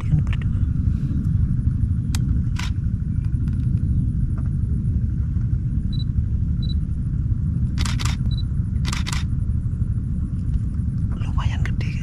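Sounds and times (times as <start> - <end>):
low rumble: 0.0 - 12.0
camera shutter clicks: 2.5 - 2.8, 7.8 - 8.2, 8.8 - 9.3.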